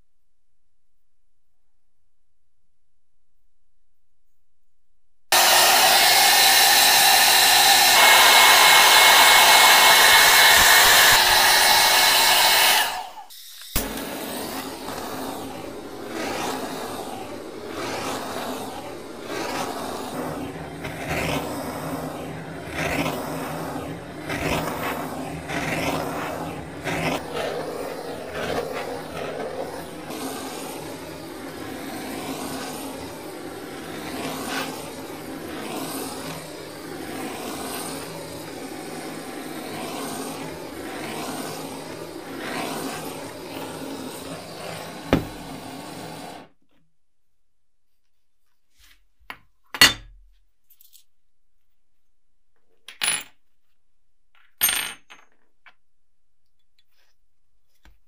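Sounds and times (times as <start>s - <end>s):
gas torch hissing: 5.3s - 46.5s.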